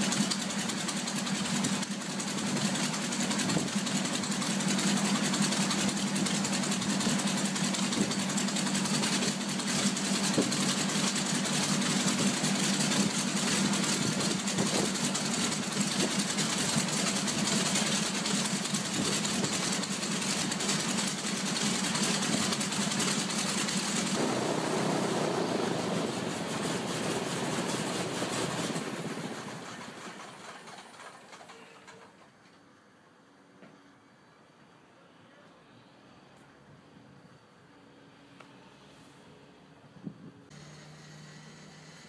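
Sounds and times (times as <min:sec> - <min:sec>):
aircraft engine rough drone: 0:00.0 - 0:31.6.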